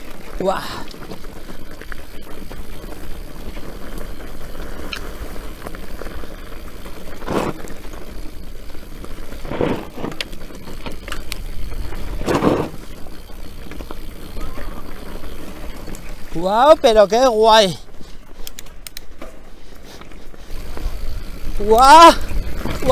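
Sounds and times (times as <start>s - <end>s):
mountain bike rattling on rocky trail: 0.0s - 22.9s.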